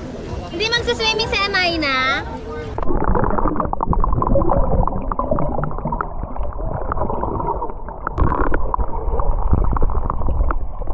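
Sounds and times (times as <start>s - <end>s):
water rush: 2.7s - 10.9s
underwater gurgling and bubbling: 2.8s - 10.9s.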